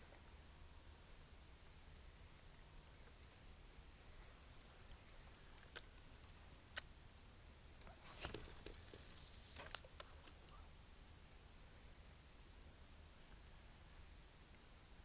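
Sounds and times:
faint high chirping: 7.9s - 9.8s
fishing rod rustling: 7.9s - 10.4s.

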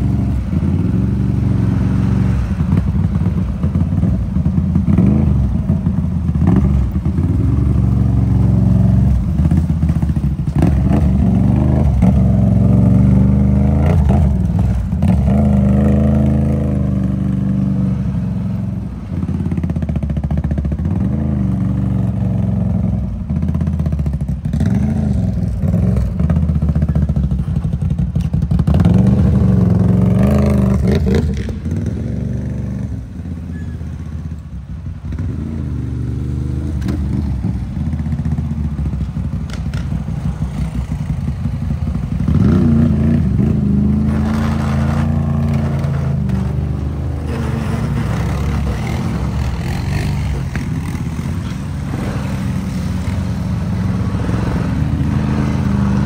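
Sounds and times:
off-road vehicle engine revving: 42.2s - 56.0s.

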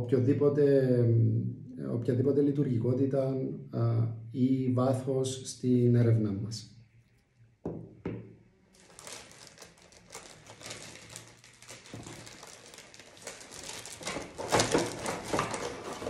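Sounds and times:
packaging crinkling and rustling: 8.6s - 16.0s.

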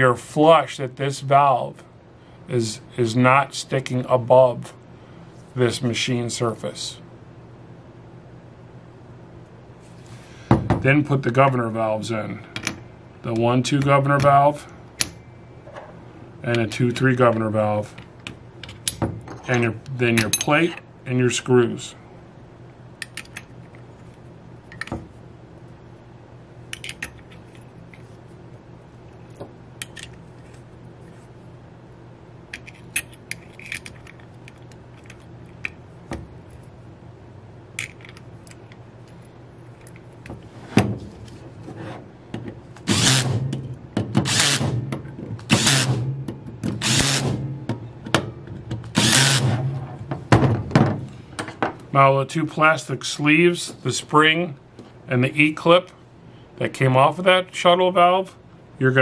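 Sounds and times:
power screwdriver bursts: 42.9s - 43.4s, 44.2s - 44.8s, 45.5s - 46.0s, 46.8s - 47.4s, 49.0s - 49.5s.

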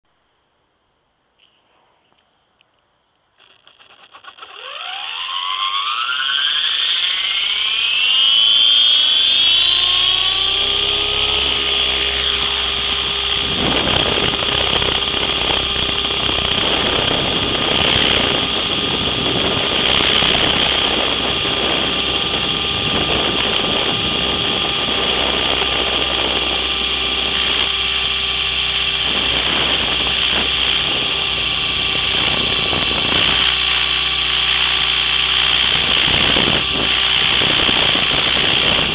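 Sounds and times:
model helicopter rotor whine: 3.4s - 38.9s
rough rushing noise: 9.6s - 38.9s.

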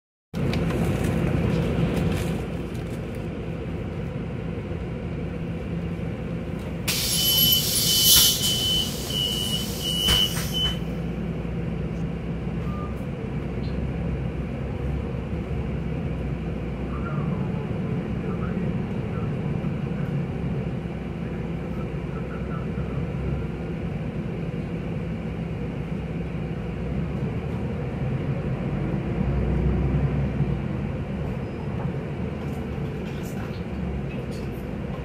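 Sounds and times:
bus diesel engine idling: 0.4s - 29.2s, 30.4s - 35.0s
compressed air hiss: 6.9s - 10.7s.

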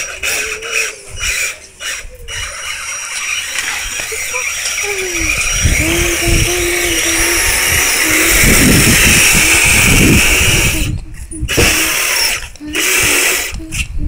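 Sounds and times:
electric motor and gears whining: 0.0s - 14.0s
low rumble: 3.6s - 12.8s.

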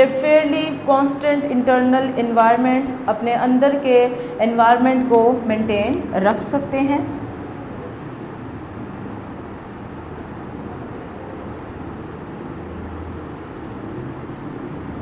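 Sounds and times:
faint hum: 0.0s - 15.0s
low background rumble: 0.0s - 15.0s.

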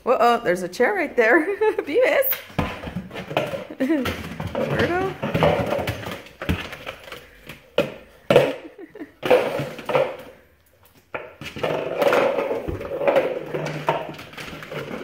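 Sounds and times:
plastic bowl knocking on floor: 2.6s - 7.0s, 7.8s - 10.3s
bowl scraping and rattling: 11.3s - 15.0s.

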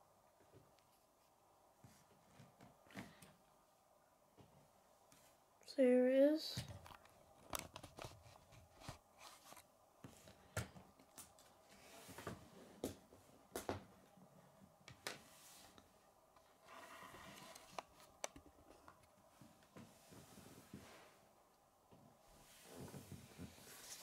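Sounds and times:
soft rubbing: 22.2s - 24.0s.

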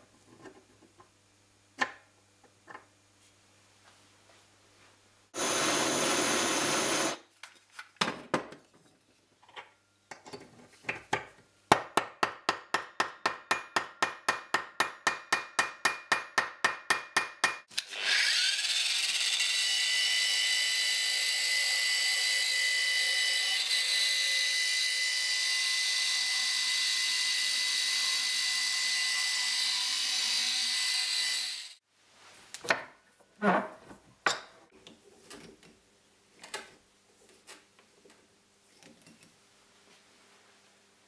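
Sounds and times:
hammer striking steel: 11.7s - 17.7s.

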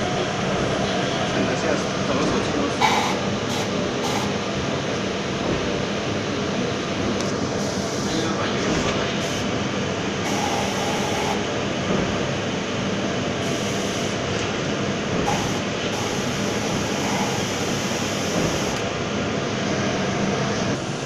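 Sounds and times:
spray booth rushing noise: 2.8s - 4.5s, 10.2s - 11.5s, 15.2s - 18.8s
spray gun spraying: 10.3s - 11.4s, 15.3s - 18.8s.

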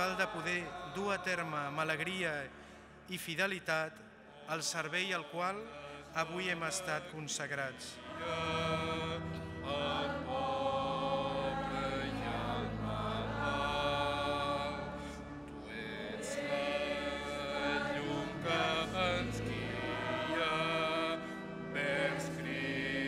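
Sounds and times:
choir singing: 0.0s - 2.5s, 4.3s - 23.0s
organ playing: 6.2s - 23.0s.

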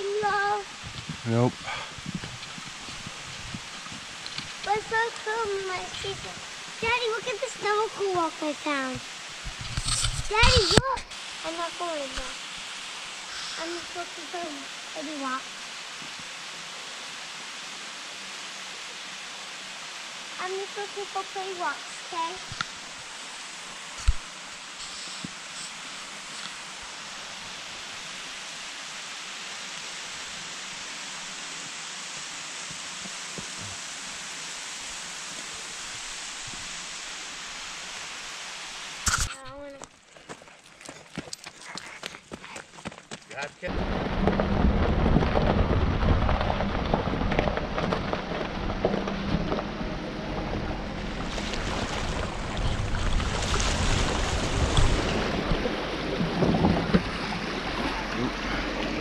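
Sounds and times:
running water rushing: 0.0s - 59.0s
vehicle engine rumble: 43.7s - 59.0s
tyres splashing through water: 43.8s - 59.0s.

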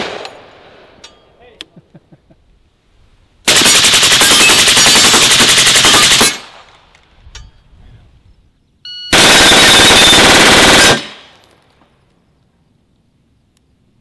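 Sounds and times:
full-auto gunfire bursts: 3.5s - 6.5s, 9.1s - 11.4s.

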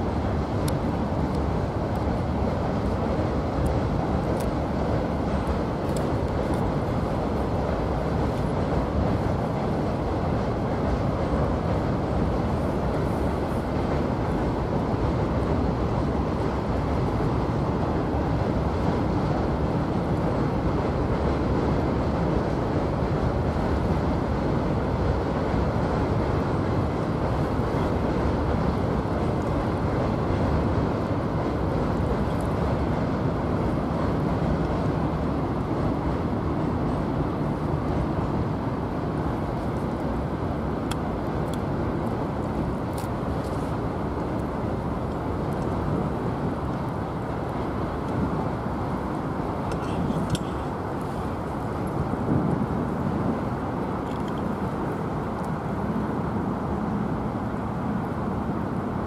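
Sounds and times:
freight train rumbling past: 0.0s - 54.0s.

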